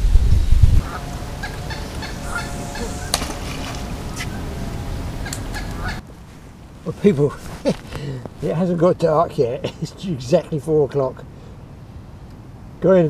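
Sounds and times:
wind rumbling on microphone: 0.0s - 8.7s
waterfowl calls: 0.8s - 6.0s.

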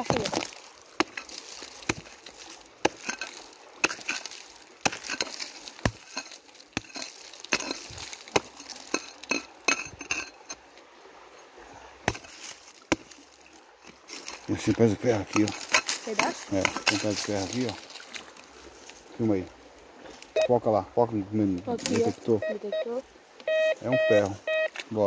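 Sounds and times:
hand hoe chopping gravelly soil: 0.0s - 10.6s, 12.0s - 18.3s.

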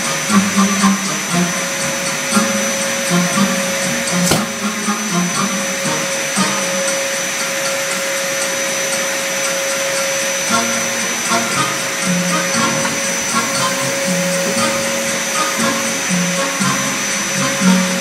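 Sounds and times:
vacuum cleaner running: 0.0s - 18.0s
sharp click: 4.2s - 4.7s.

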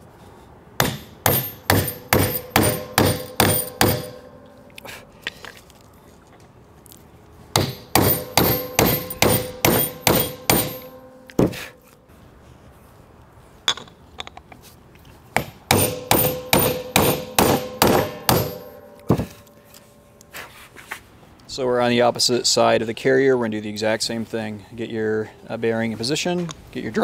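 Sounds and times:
hammer blows on metal: 0.8s - 5.0s, 7.5s - 11.9s, 15.4s - 19.9s.

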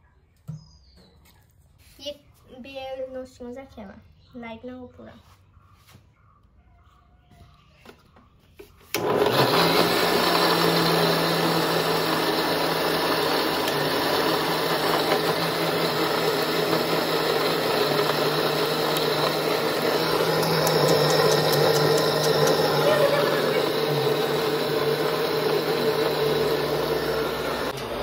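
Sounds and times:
electric mixer grinder running: 9.0s - 28.0s.

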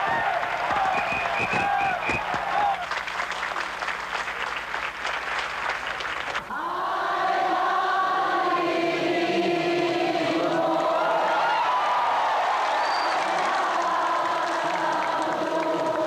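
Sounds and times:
crowd applause: 0.0s - 6.7s, 10.8s - 16.0s.

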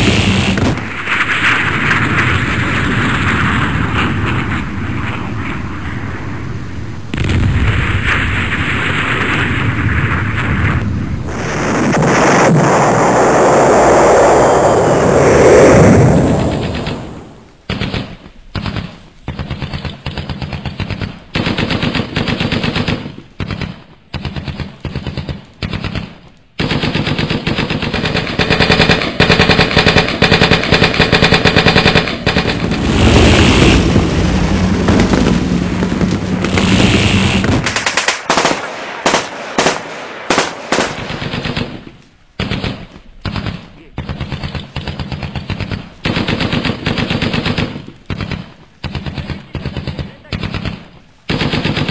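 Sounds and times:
airsoft rifles firing full auto: 17.7s - 33.0s, 36.4s - 51.9s.

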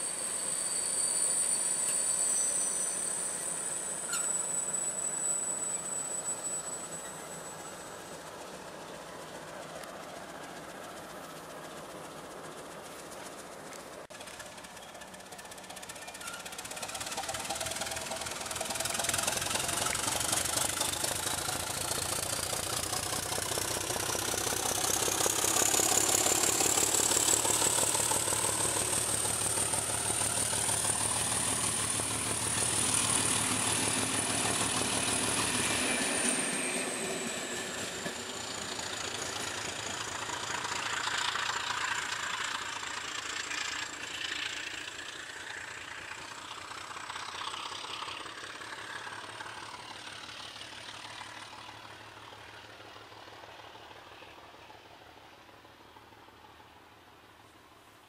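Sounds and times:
high turbocharger whistle: 0.0s - 8.2s, 15.9s - 42.5s
diesel locomotive engine throb: 0.1s - 54.2s.

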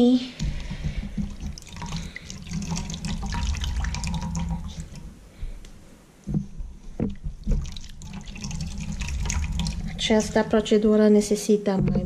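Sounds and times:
coconut squelching: 0.3s - 5.2s, 7.1s - 11.0s
liquid splashes in bowl: 7.4s - 10.7s.

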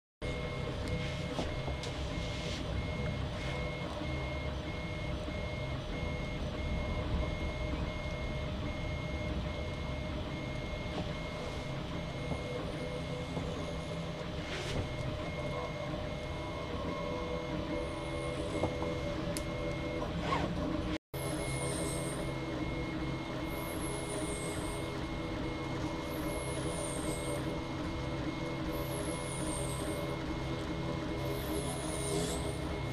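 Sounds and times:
printer motors and fans humming: 0.2s - 32.9s
pulsing high whine: 0.2s - 32.9s.

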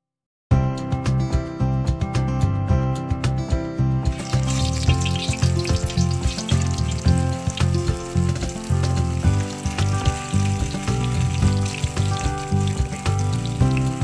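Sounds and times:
background music with beat: 0.5s - 14.0s
spring rolls sizzling in oil: 4.1s - 14.0s.

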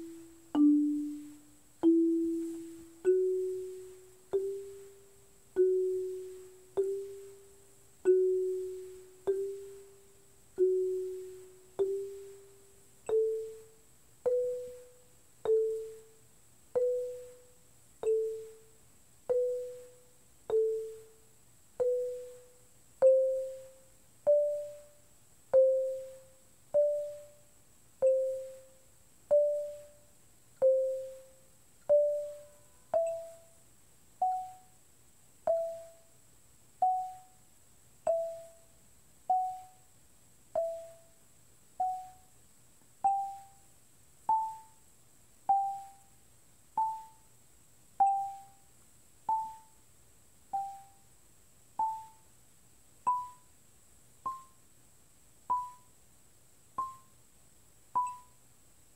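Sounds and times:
marimba notes: 0.0s - 18.7s, 19.3s - 21.2s, 21.8s - 24.9s, 25.5s - 27.4s, 28.0s - 30.0s, 30.6s - 33.6s, 34.2s - 34.7s, 35.5s - 36.0s, 38.1s - 38.7s, 39.3s - 39.8s, 48.0s - 48.6s, 53.1s - 53.4s, 54.3s - 54.6s, 55.5s - 55.9s, 56.8s - 57.1s, 58.0s - 58.4s.

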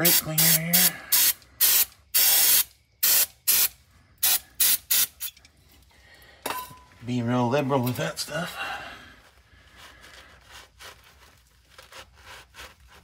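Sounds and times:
aerosol spray hissing bursts: 0.0s - 5.3s.

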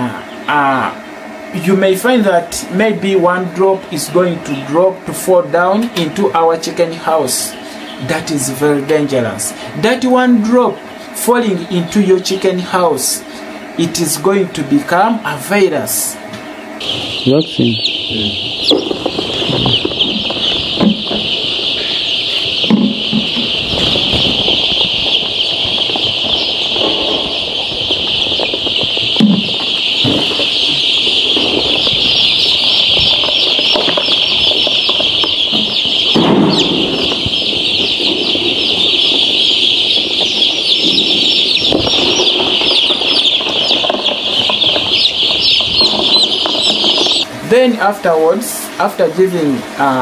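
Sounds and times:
chicks peeping: 0.0s - 50.0s
low knocks and rustles: 18.4s - 47.3s.

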